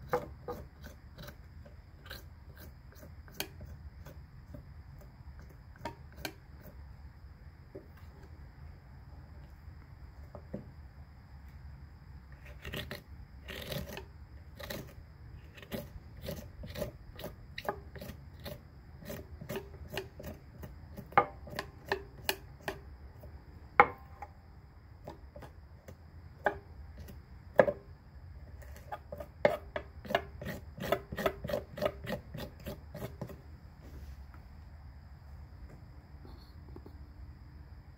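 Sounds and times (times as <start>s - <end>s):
knife scraping on cutting board: 12.4s - 14.9s, 15.5s - 20.4s, 28.6s - 33.4s.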